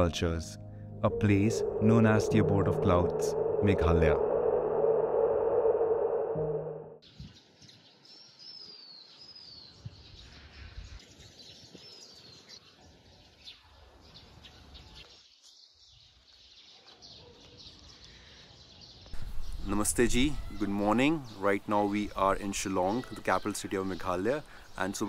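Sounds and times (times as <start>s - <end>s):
faint outdoor background noise: 7.0s - 25.0s.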